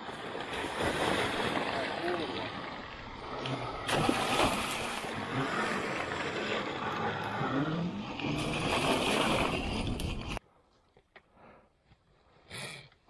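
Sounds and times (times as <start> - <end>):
dirt bike churning through mud: 3.6 - 10.4.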